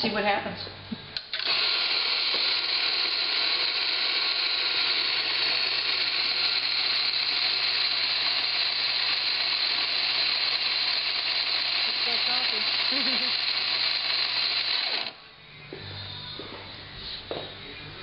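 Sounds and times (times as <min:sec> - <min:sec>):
coffee grinder grinding: 0:01.3 - 0:15.2.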